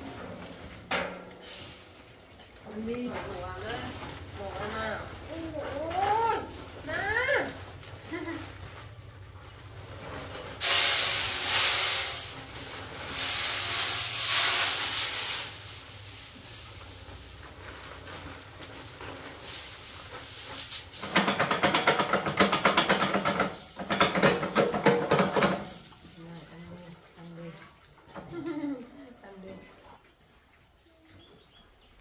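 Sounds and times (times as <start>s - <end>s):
pigs eating rattling crackle: 0.0s - 28.8s
dry feed pouring into metal hopper: 1.4s - 1.8s, 10.2s - 26.0s.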